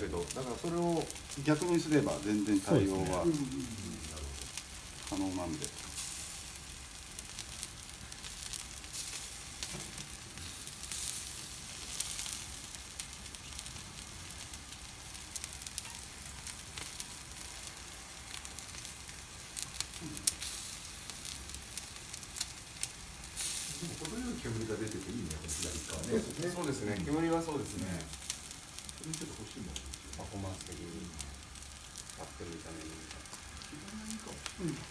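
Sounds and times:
fat crackling and popping: 0.0 - 34.9
skewers sizzling on a grill: 0.0 - 34.9.

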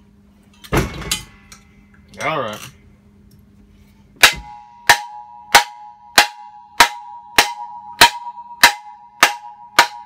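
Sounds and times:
hammer striking metal: 4.2 - 10.0
metal housing ringing: 4.2 - 10.0.

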